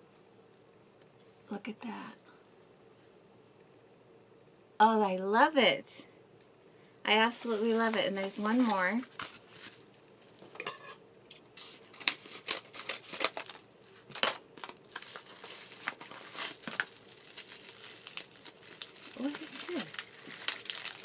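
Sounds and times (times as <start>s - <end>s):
wrapping crinkling: 7.3s - 10.5s, 11.6s - 21.0s
scissors cutting a packet: 12.0s - 13.6s.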